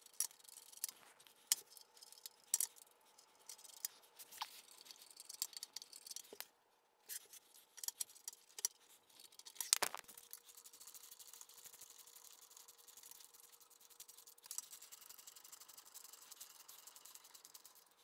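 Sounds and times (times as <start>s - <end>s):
light metallic clicks and scrapes: 0.0s - 11.8s.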